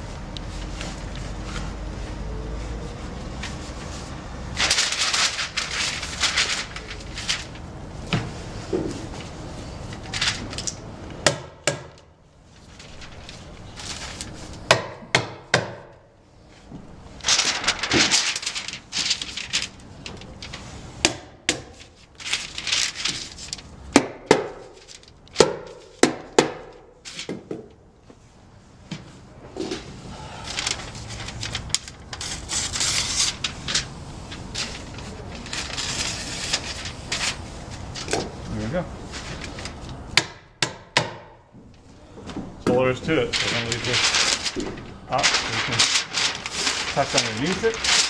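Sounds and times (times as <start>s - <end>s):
plastic wrap crinkling: 2.6s - 10.9s, 12.5s - 14.7s, 16.8s - 21.0s, 21.8s - 23.9s, 24.6s - 25.9s, 30.4s - 40.0s, 43.1s - 48.0s.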